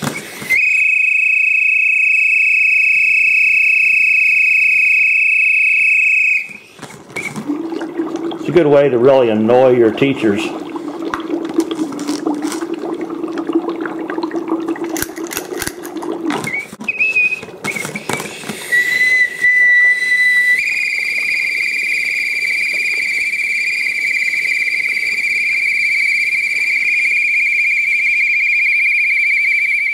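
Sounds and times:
shrill plastic whistle: 0.0 - 7.4, 16.4 - 29.9
dry ice fizzing and bubbling: 0.0 - 29.6.

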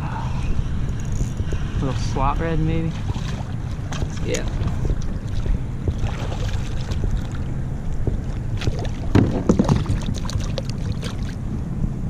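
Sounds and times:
steady low rumble: 0.0 - 12.0
water and handling noises: 2.7 - 11.4.

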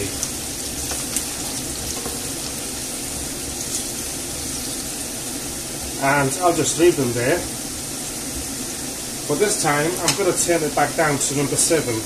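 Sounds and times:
potatoes sizzling in oil: 0.0 - 12.0
wooden spatulas scraping: 0.8 - 2.7.

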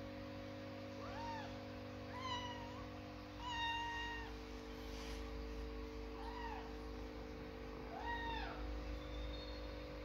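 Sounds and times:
kittens mewing: 1.0 - 4.5, 6.0 - 6.9, 7.8 - 9.0.

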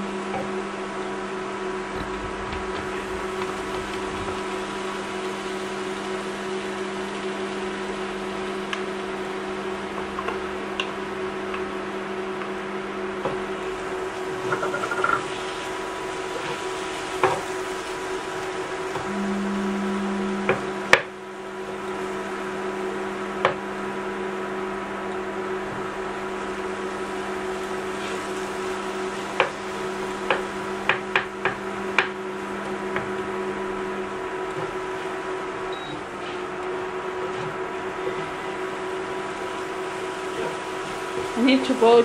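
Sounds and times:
background hum: 0.0 - 36.0
low electric hum: 0.0 - 42.0
wooden spoon stirring in a pan: 2.0 - 7.6, 12.4 - 19.1, 25.0 - 42.0
short beep: 19.1 - 20.5, 35.7 - 36.0.

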